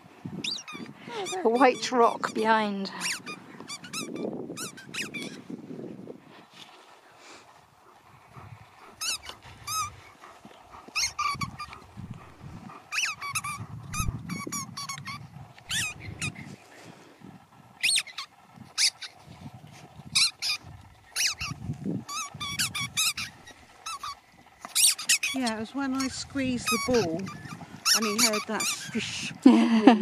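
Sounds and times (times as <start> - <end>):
rubber squeaky ball squeaking: 0.4 - 5.4, 11.0 - 11.7, 12.9 - 16.4, 17.8 - 19.2, 21.2 - 29.4.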